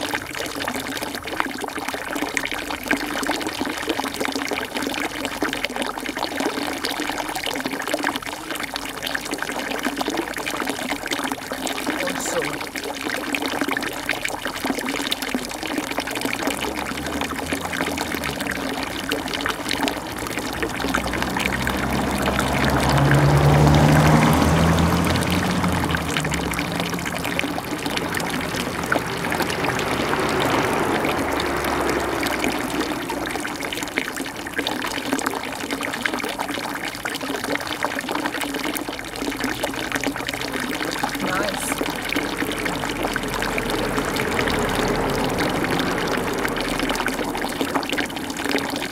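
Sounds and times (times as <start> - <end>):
water trickling: 0.0 - 48.9
vehicle passing: 11.2 - 12.8, 15.2 - 35.7, 38.6 - 48.9.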